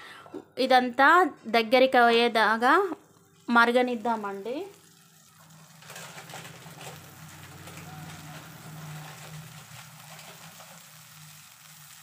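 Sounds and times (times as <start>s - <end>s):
pulp boiling with crackles: 2.6s - 12.0s.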